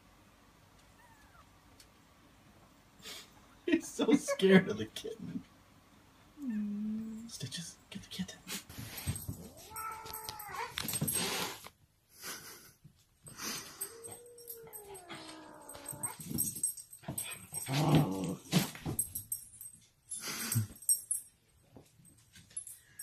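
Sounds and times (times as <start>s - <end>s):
dog whining: 1.0s - 1.5s, 9.4s - 10.8s, 13.7s - 16.4s
dog growling: 17.6s - 18.6s.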